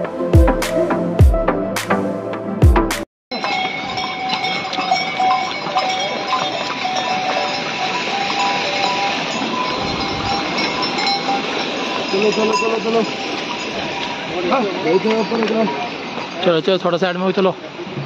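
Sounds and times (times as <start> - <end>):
background music: 0.0 - 3.0
animal bells jingling: 3.3 - 17.4.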